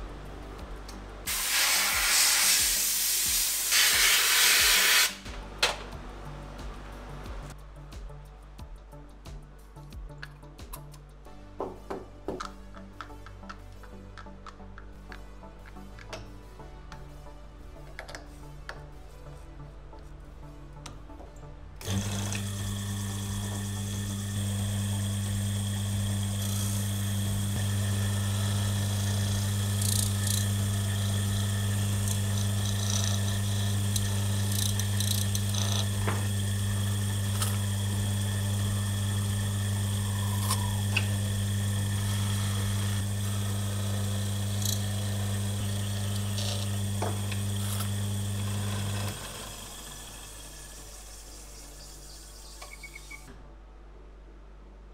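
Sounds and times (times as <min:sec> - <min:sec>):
electric motor humming: 0:21.8 - 0:53.2.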